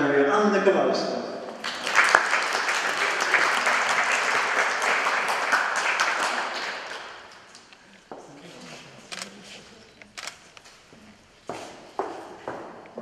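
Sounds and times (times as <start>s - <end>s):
audience clapping: 1.5s - 7.8s.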